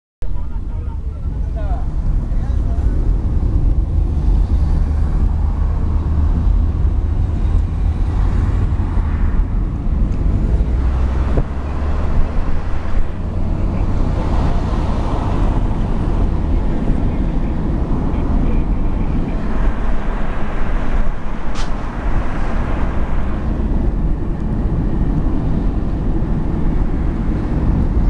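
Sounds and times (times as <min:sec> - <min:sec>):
car engine: 0:00.2 - 0:28.0
road noise: 0:00.2 - 0:28.0.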